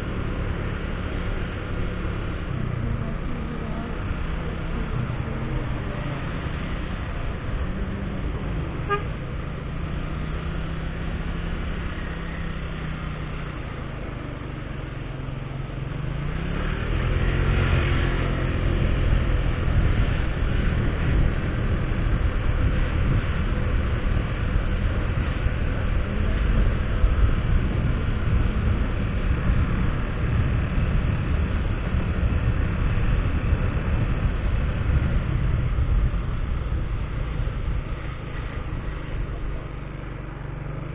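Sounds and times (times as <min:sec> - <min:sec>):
motorcycle engine revving: 0:00.0 - 0:40.9
road noise: 0:00.0 - 0:40.9
horn toot: 0:08.8 - 0:09.2.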